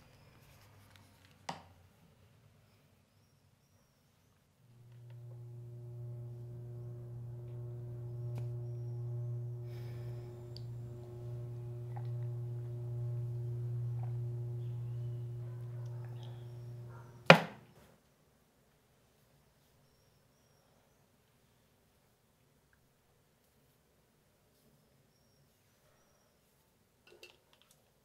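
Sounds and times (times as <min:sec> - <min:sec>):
low droning hum: 0:04.8 - 0:17.3.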